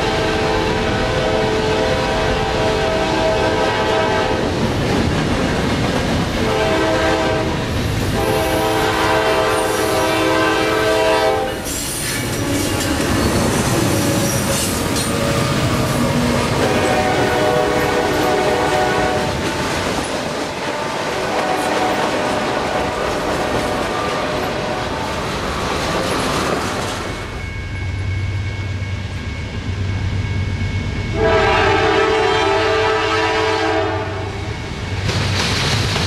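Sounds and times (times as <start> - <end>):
locomotive horn: 0.0 - 4.5, 6.4 - 12.8, 14.0 - 19.7, 20.6 - 25.1, 31.1 - 34.5
freight cars rumbling and clattering: 4.4 - 6.5, 19.2 - 27.4.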